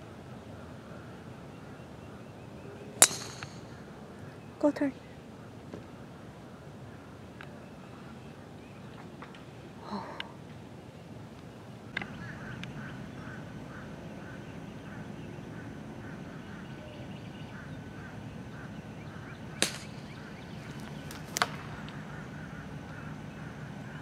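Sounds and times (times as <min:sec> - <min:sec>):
outdoor background noise: 0:00.0 - 0:24.0
golf club striking ball: 0:03.0 - 0:03.8, 0:19.4 - 0:22.0.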